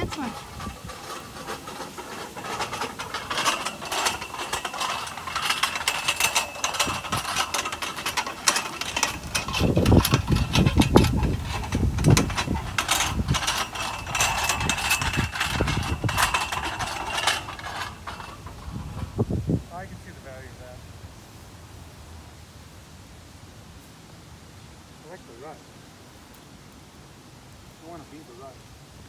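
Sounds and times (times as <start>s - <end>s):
metal pivot squeaking and clanking: 0.0s - 19.2s
heavy ball rolling in dirt rut: 0.0s - 19.6s.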